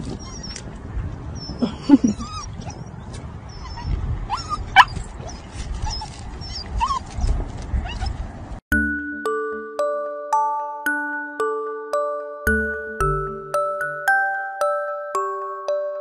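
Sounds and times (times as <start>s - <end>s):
puppy whining and yipping: 0.0s - 8.2s.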